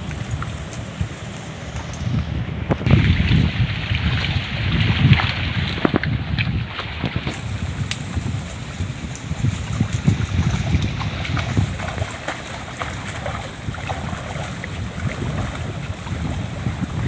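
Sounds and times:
wading through shallow water: 0:00.0 - 0:17.0
wind buffeting microphone: 0:00.0 - 0:17.0.

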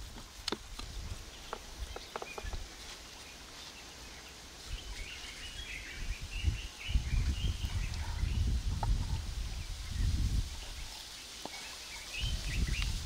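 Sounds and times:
bird chirping: 0:01.0 - 0:13.0.

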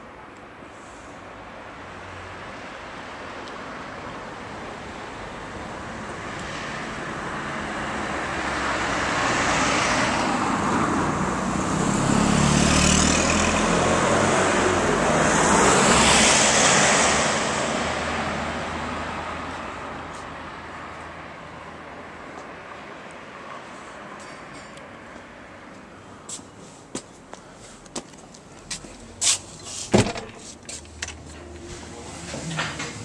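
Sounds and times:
vehicles driving past: 0:00.0 - 0:33.0.

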